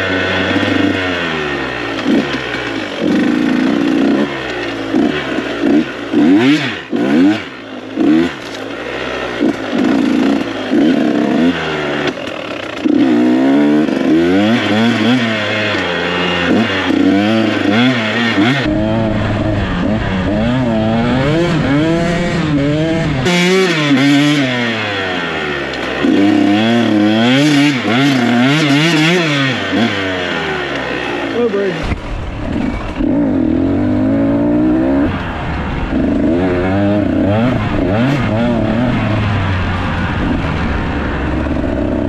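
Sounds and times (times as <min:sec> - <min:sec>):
dirt bike engine revving: 0:00.0 - 0:42.0
low rumbling noise: 0:17.2 - 0:25.6, 0:30.4 - 0:42.0.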